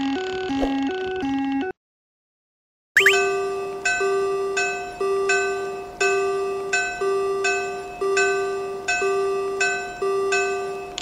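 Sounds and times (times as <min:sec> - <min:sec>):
railroad crossing bell ringing: 0:03.2 - 0:11.0.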